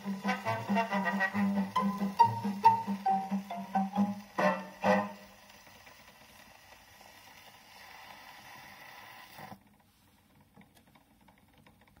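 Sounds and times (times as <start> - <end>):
gramophone needle hiss: 0.0 - 9.6.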